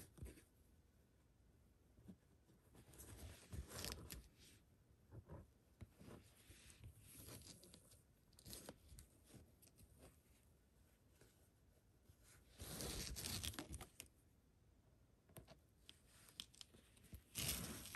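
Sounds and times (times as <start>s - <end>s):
thread rustling through fabric: 5.2s - 10.5s, 15.9s - 17.9s.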